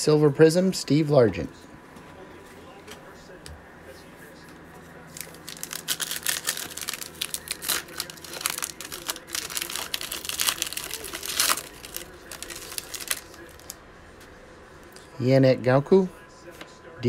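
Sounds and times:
foil wrapper tearing and crinkling: 5.1s - 13.8s.

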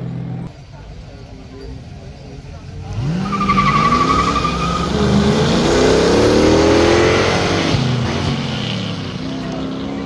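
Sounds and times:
car engines revving hard: 2.3s - 10.0s
warbling tyre squeal: 3.1s - 5.8s.

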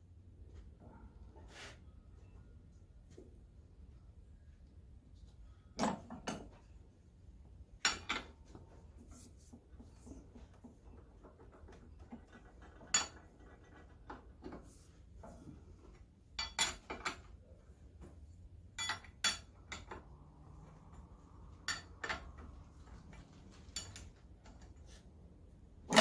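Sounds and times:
wrench clinking on metal: 18.8s - 20.0s, 21.6s - 22.5s, 23.7s - 24.2s.

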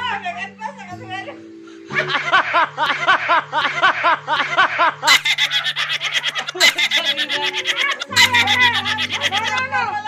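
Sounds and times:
man laughing hard: 1.9s - 9.6s.

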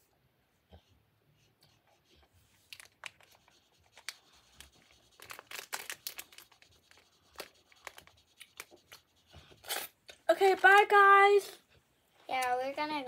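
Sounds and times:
plastic candy bag crinkling: 2.6s - 8.7s, 10.1s - 11.1s.

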